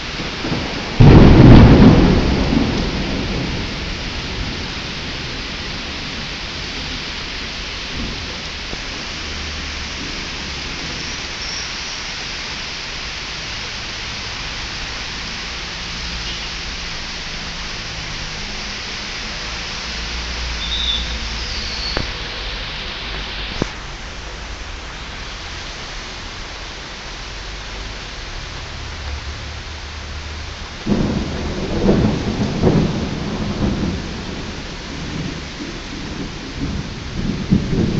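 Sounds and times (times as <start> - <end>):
thunder clap and rumbling: 0.0 - 11.4, 30.6 - 37.9
heavy downpour hissing: 0.0 - 37.9
heavy rain pouring: 0.0 - 37.9.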